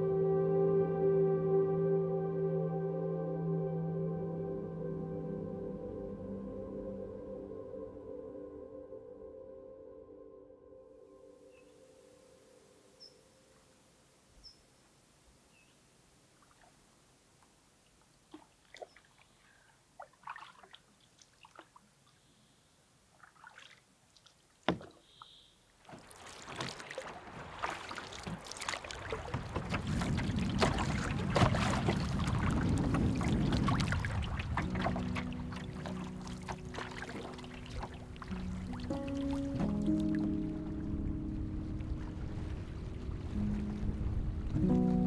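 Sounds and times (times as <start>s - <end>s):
water sloshing along canoe hull: 15.5s - 45.0s
water dripping: 16.3s - 22.2s, 23.1s - 40.4s
paddle splashes: 16.3s - 41.1s, 41.7s - 44.9s.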